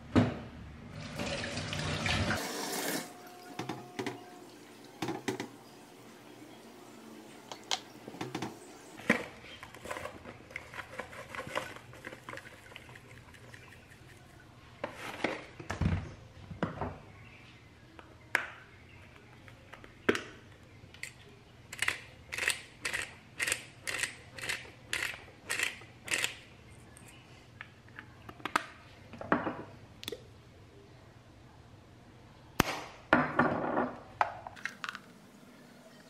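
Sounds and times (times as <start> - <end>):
pepper mill grinding: 21.8 - 26.4.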